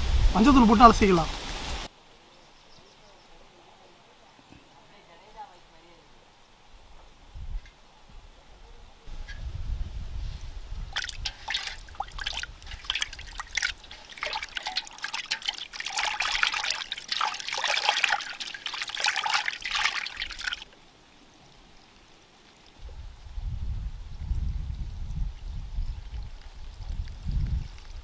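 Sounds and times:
water splashing and sloshing: 10.9 - 22.8.

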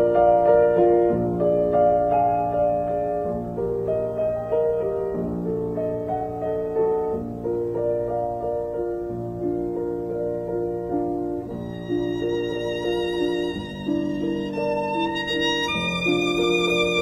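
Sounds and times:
slow piano melody: 0.0 - 17.0
violin with vibrato: 11.6 - 17.0.

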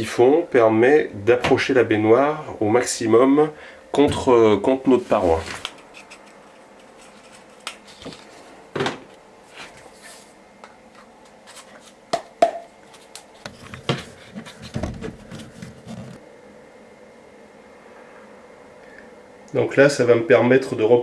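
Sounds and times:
rubbing and rustling: 5.0 - 8.5, 12.8 - 16.2.

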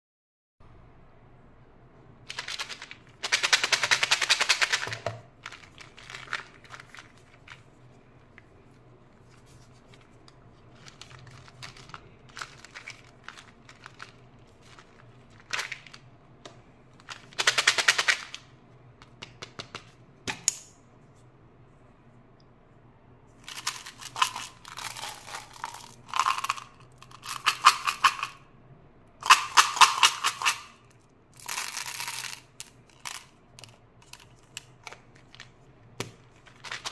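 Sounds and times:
candies rattling in plastic jar: 2.3 - 7.8, 9.5 - 16.0, 17.0 - 18.4, 23.4 - 28.4, 29.2 - 35.6, 36.3 - 36.9
candies poured into hand: 23.4 - 28.2.

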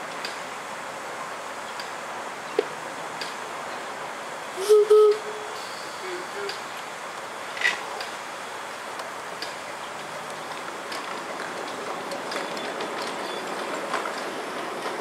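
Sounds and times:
miniature steam train rolling: 4.6 - 15.0
wheels clicking over rail joints: 6.4 - 8.2, 8.9 - 15.0.

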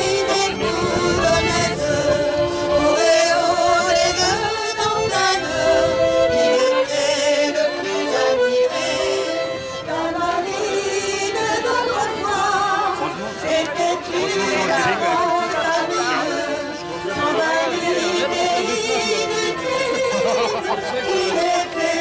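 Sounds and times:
button accordion: 0.0 - 22.0
violin: 0.0 - 22.0
voices singing along: 0.0 - 22.0.

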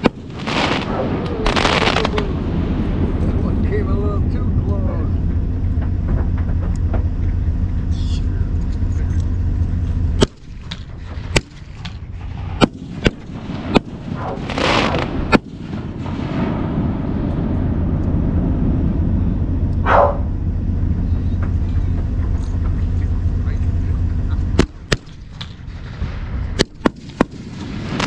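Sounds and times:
hissing crackling firework burst: 0.0 - 3.8, 10.2 - 17.6
firework bangs: 0.0 - 7.7, 9.7 - 28.0
low rumble: 0.0 - 28.0.

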